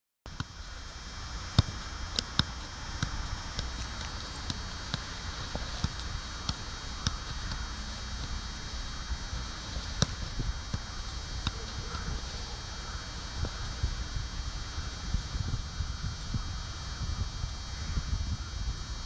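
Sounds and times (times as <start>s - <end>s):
background hiss: 0.3s - 19.0s
football kick thuds: 1.5s - 8.7s, 9.3s - 12.4s.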